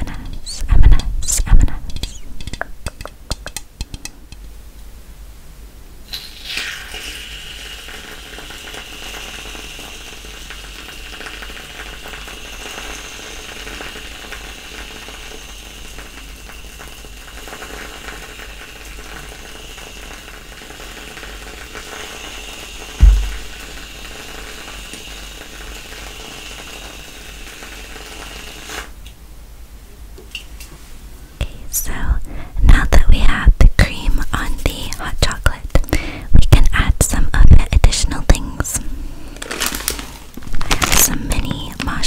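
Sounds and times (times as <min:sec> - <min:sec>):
loud low thump: 0:23.0 - 0:23.6.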